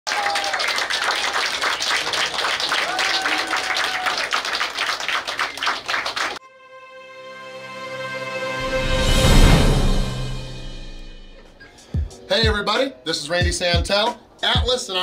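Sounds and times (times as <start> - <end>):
crowd clapping and cheering: 0.0 - 6.4
voices whooping: 2.6 - 4.5
music with held notes: 6.4 - 15.0.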